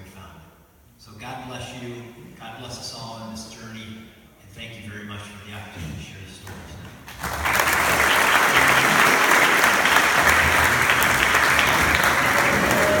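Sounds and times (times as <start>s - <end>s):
audience applause: 7.1s - 13.0s.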